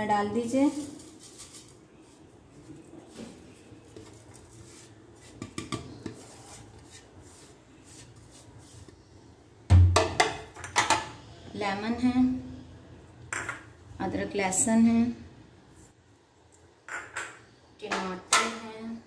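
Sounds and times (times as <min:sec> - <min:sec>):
kitchenware knock and clatter: 0:09.7 - 0:11.1, 0:13.3 - 0:13.8, 0:16.9 - 0:18.7.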